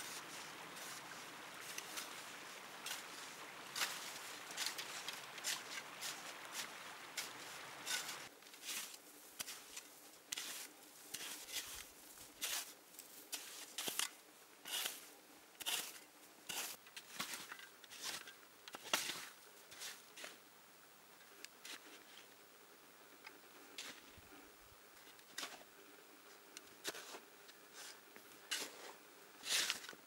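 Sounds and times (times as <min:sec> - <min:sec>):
steady hiss: 0:00.0 - 0:16.9
shovel scraping snow: 0:00.0 - 0:20.4, 0:26.8 - 0:29.9.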